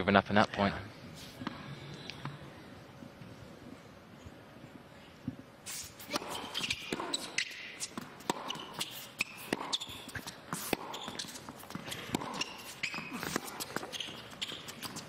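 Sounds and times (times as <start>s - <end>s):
shoes squeaking on court: 5.6s - 15.0s
rackets striking tennis ball: 6.0s - 15.0s
ball bouncing on court: 6.1s - 15.0s.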